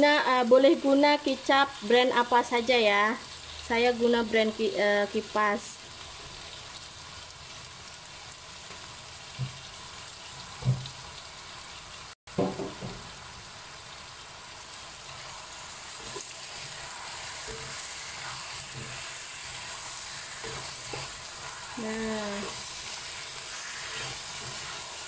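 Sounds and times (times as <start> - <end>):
chicken sizzling in a wok: 0.0 - 25.0
spatula scraping a wok: 15.2 - 25.0.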